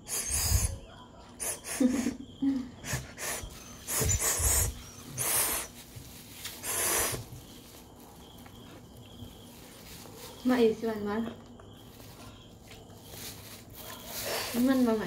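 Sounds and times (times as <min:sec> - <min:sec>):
child sucking on candy: 0:00.0 - 0:00.7, 0:01.4 - 0:02.1, 0:02.9 - 0:05.8, 0:06.4 - 0:07.4
loud breaths through nose: 0:00.0 - 0:07.8, 0:13.2 - 0:14.9.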